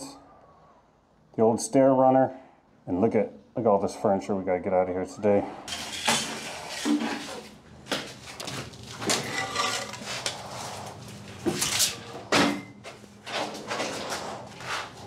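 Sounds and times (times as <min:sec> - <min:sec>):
boards and debris clattering on concrete: 0:05.7 - 0:10.4
scraping on concrete floor: 0:05.7 - 0:15.0.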